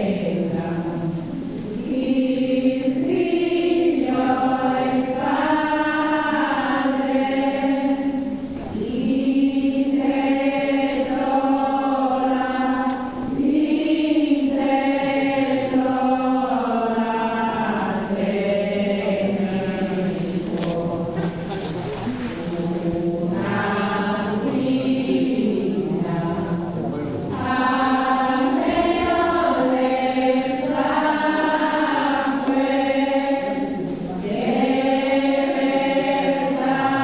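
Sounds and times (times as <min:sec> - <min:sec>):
voices singing a slow chant: 0:00.0 - 0:37.0.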